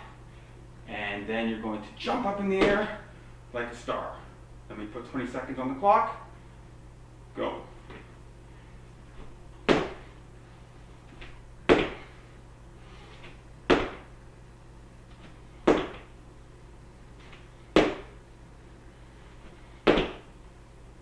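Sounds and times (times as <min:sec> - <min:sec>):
feet thudding on wood floor: 0:02.6 - 0:03.0, 0:09.1 - 0:10.2, 0:11.1 - 0:12.2, 0:13.2 - 0:14.1, 0:15.2 - 0:16.1, 0:17.2 - 0:18.2, 0:19.4 - 0:20.3.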